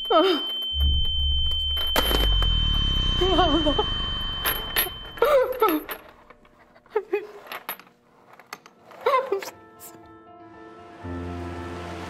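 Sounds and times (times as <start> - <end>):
high electronic tone: 0.0 - 5.6
handcuff chain clinking: 4.4 - 9.9.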